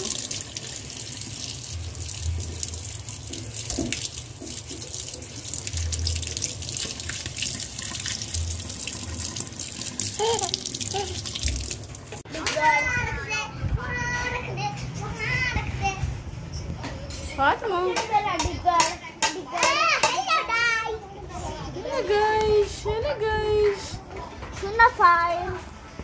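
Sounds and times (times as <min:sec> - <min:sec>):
water splashing over cup and hand: 0:00.0 - 0:12.2
tap water running into sink: 0:00.0 - 0:12.3.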